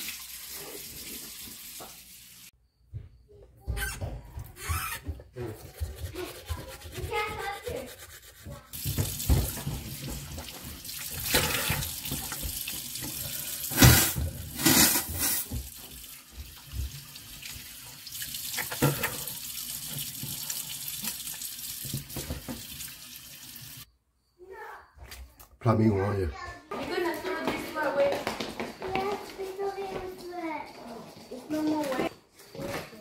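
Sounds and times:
tap running into a sink: 18.2 - 23.0.

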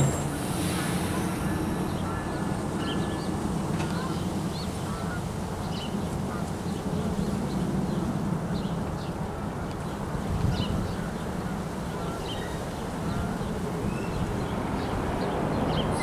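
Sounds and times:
locomotive idling hum: 0.0 - 4.8.

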